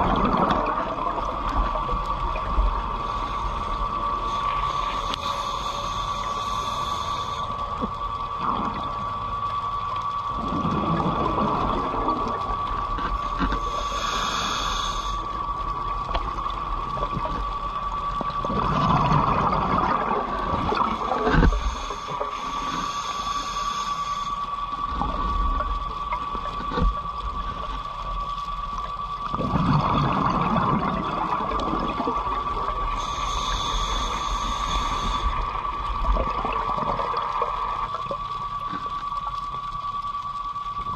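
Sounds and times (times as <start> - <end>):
exhaled bubbles underwater: 0.0 - 40.9
regulator inhalation hiss: 2.8 - 7.9, 13.5 - 15.6, 20.8 - 24.9, 32.7 - 36.0.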